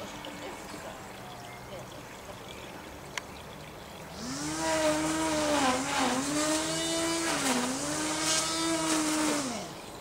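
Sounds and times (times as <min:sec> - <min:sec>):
lawn trimmer motor whine: 0:04.1 - 0:09.9.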